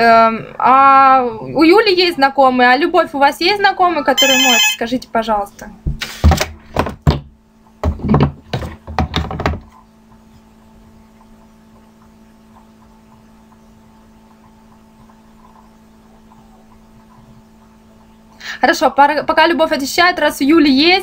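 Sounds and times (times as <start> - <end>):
low electrical hum: 0.0 - 21.0
faint fixed tones: 4.2 - 4.8
loud thumps and knocks: 6.3 - 9.7.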